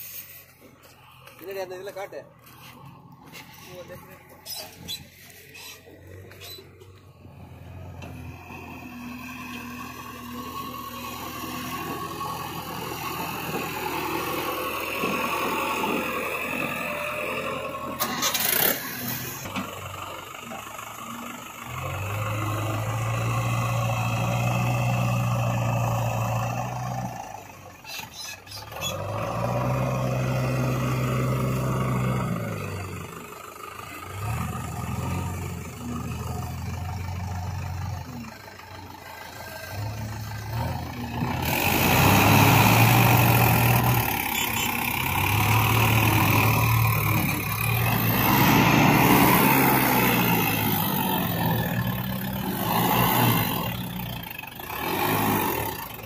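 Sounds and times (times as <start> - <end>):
heavy diesel engine working hard: 0.0 - 56.0.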